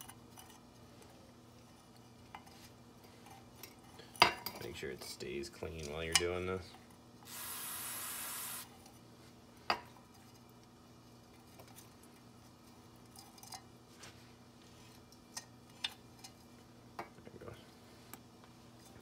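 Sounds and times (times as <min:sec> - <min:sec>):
aerosol spray hiss: 0:07.3 - 0:08.7.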